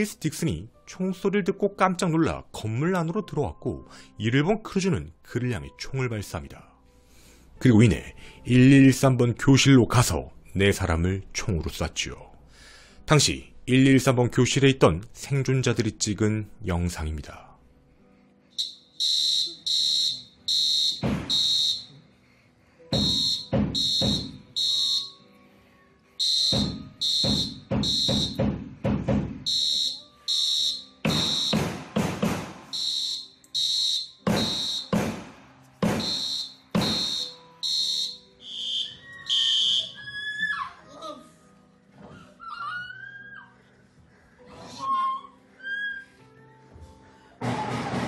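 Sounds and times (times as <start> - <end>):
fire alarm horn pulsing: 18.6 - 21.9, 23.0 - 25.2, 26.2 - 28.4, 29.5 - 31.6, 32.7 - 35.0, 36.0 - 39.9.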